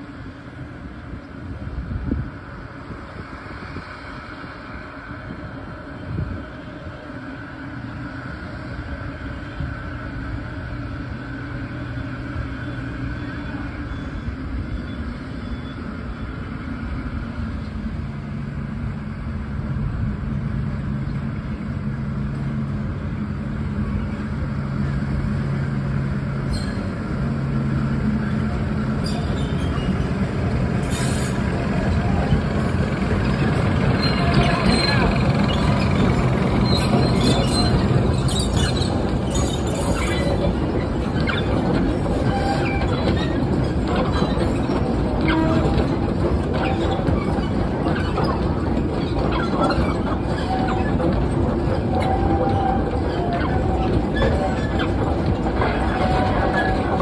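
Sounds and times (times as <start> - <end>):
diesel locomotive engine hum: 0.0 - 57.0
wheels clicking on rails: 22.3 - 57.0.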